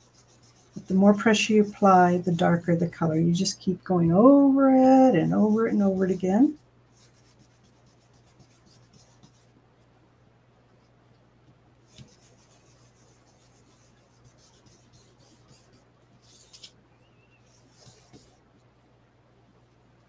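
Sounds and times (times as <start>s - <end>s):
scratchy brushing on card: 0.0s - 2.2s, 5.4s - 9.5s, 11.8s - 18.4s.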